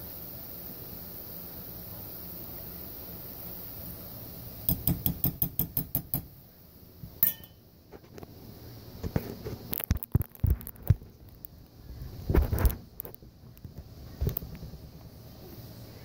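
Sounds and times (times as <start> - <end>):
hot oil sizzling: 0.0 - 16.0
metal spatula clinking on metal: 7.2 - 7.6.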